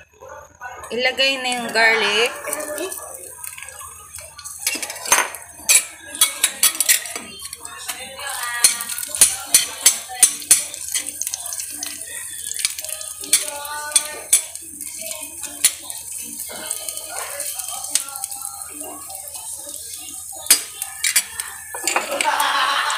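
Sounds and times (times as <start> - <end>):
garlic frying hiss: 1.0 - 22.9
metal ladle clinking against pan: 4.4 - 18.4, 19.9 - 22.3.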